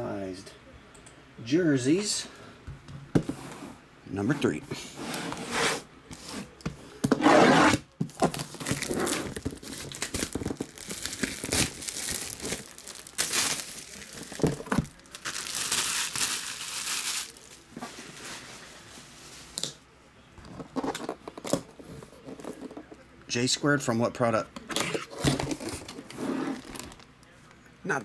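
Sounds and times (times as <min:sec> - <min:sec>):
plastic shrink wrap tearing: 0:08.2 - 0:17.7.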